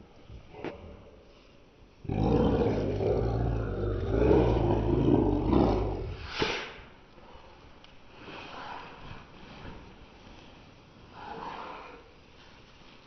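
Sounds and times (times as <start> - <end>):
dogs growling and snarling: 2.0 - 6.3.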